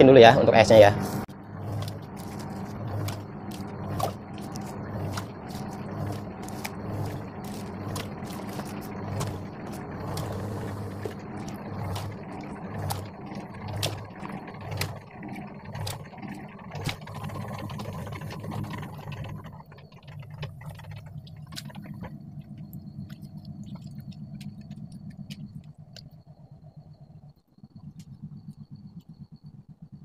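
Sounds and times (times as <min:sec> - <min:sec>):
refrigeration unit hum: 0:00.0 - 0:30.0
water sloshing: 0:01.0 - 0:26.4.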